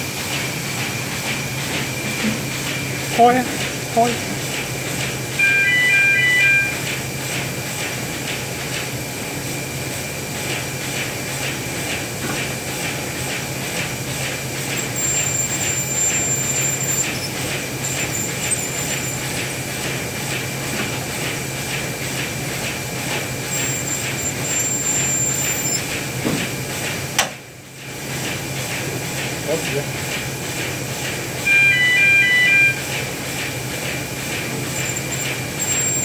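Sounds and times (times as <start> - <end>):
paper cutter humming: 0.0 - 27.2, 28.4 - 36.0
short electronic beep: 5.4 - 6.8, 31.5 - 32.8.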